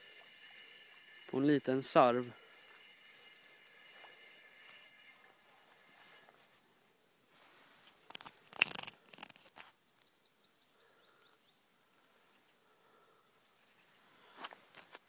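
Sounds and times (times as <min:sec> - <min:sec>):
faint bird chirps: 0:00.0 - 0:06.4, 0:09.6 - 0:14.4.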